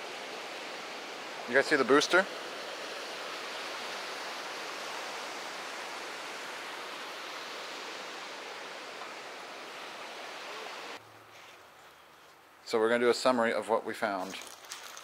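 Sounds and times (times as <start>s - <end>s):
ocean surf washing on beach: 0.0s - 11.0s.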